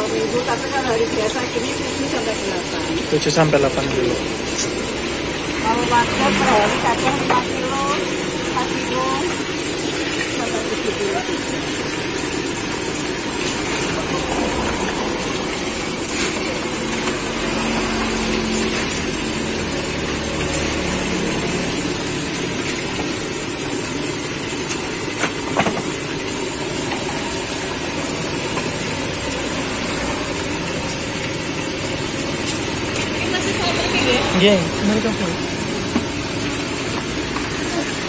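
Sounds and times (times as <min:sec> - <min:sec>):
deep-frying sizzle in oil: 0:00.0 - 0:38.0.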